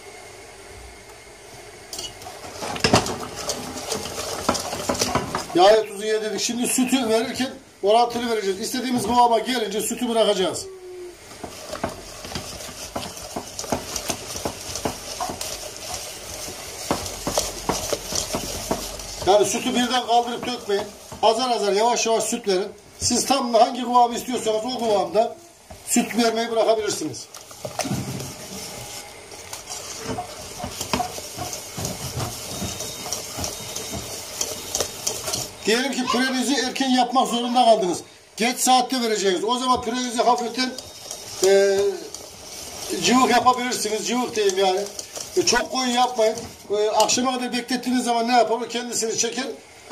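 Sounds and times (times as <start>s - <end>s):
whisk scraping and clicking in metal pot: 2.0s - 5.7s, 11.3s - 23.4s, 27.2s - 37.4s, 38.4s - 48.4s
soft squelching stir: 2.0s - 49.9s.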